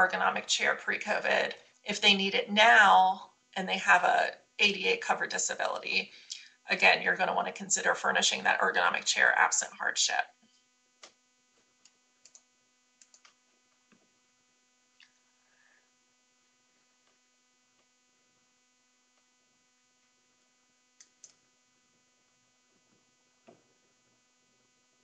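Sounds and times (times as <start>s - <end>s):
electrical hum: 0.0s - 11.2s
faint clicks: 13.0s - 13.4s, 21.0s - 21.4s.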